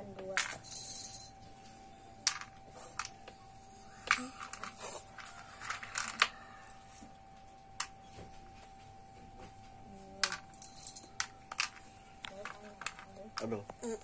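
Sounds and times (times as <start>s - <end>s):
game pieces clicking into cups: 0.0s - 1.2s, 2.2s - 6.8s, 7.8s - 8.1s, 10.2s - 13.8s.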